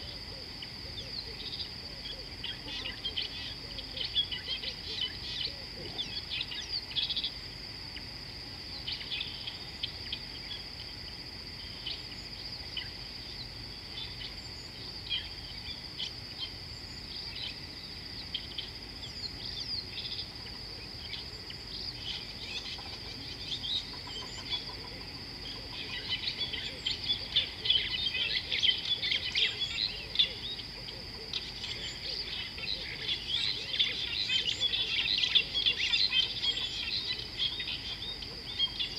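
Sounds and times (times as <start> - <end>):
birds chirping: 11.7 - 38.9.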